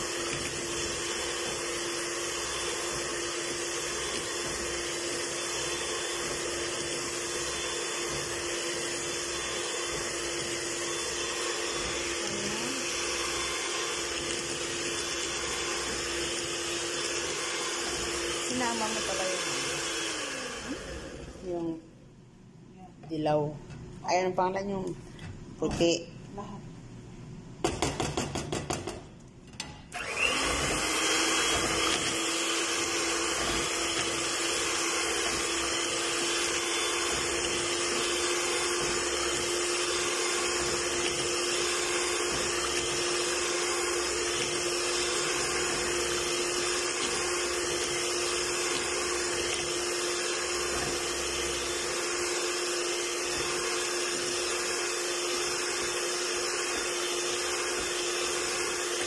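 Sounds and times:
electric hand mixer whining: 0.0s - 21.8s, 29.9s - 59.0s.

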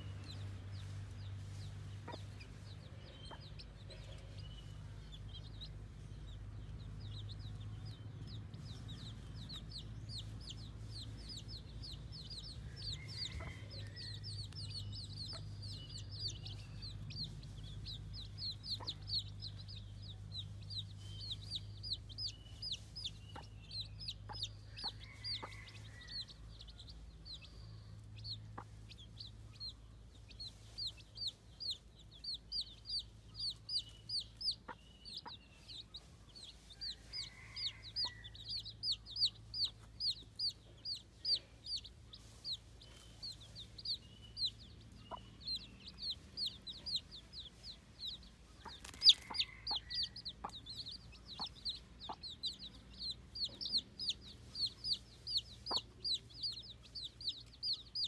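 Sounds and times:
low steady hum: 0.0s - 37.2s
chicks peeping: 0.0s - 58.0s.

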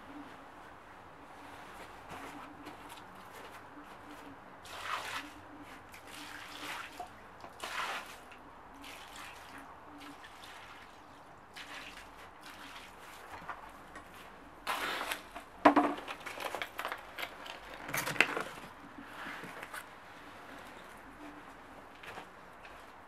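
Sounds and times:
water splashing onto wood and grass: 4.6s - 13.6s.

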